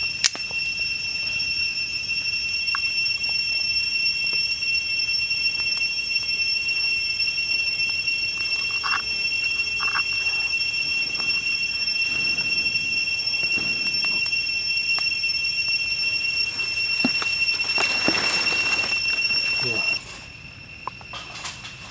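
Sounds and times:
insects droning: 0.0s - 21.9s.

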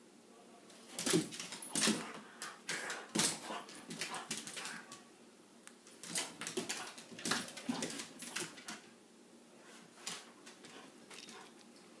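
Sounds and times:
paws scrabbling on wood floor: 0.9s - 5.0s, 5.9s - 8.9s, 9.9s - 11.6s.

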